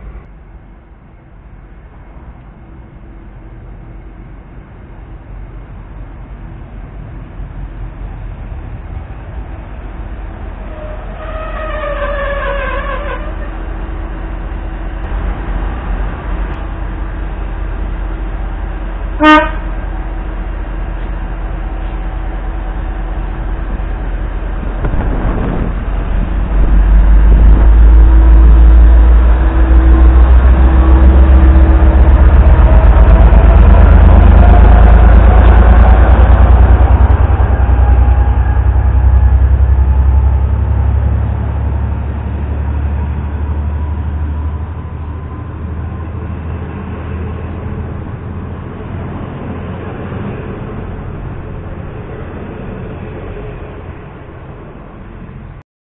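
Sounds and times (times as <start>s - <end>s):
diesel engine rumbling: 0.0s - 55.6s
locomotive horn toot: 10.6s - 13.7s, 19.2s - 19.8s
rising whine: 23.6s - 45.7s.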